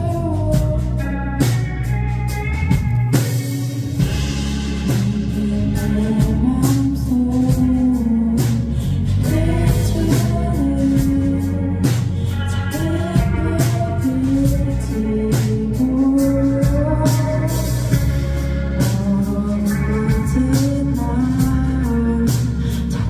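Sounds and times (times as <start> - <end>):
live band playing: 0.0 - 23.0
drum hits: 2.6 - 5.4.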